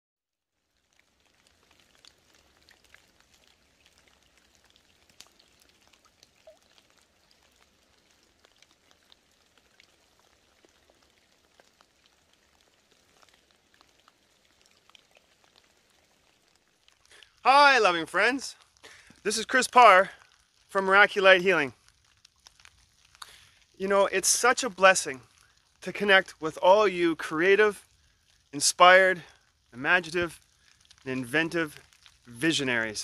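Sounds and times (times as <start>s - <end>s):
raindrops ticking: 0.5s - 33.0s
light hiss: 0.8s - 33.0s.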